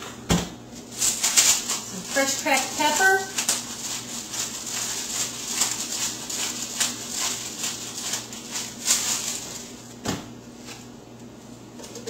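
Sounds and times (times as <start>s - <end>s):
pepper mill grinding: 0.9s - 9.8s.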